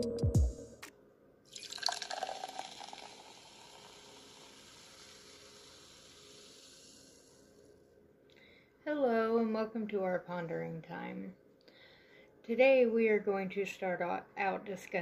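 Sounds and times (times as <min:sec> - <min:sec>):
intro music: 0:00.0 - 0:00.9
fizzing hiss: 0:01.6 - 0:07.4.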